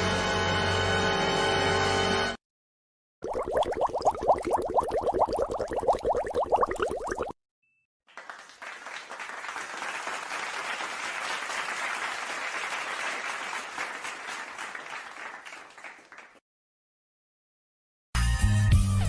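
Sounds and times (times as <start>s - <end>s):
crowd applauding: 8.1s - 16.4s.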